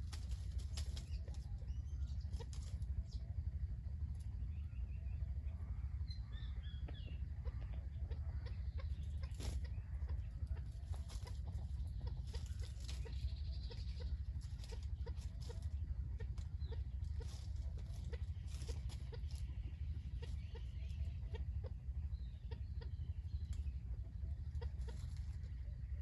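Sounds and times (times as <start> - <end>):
low rumble: 0.0 - 26.0
fowl clucking: 5.5 - 26.0.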